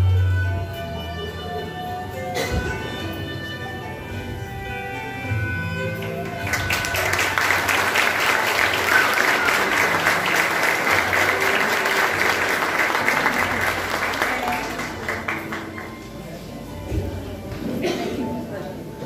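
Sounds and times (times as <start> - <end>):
audience applauding: 6.2 - 16.4.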